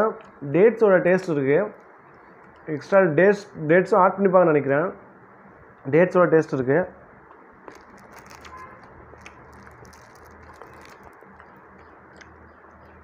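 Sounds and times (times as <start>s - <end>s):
faint chewing: 7.3s - 13.0s.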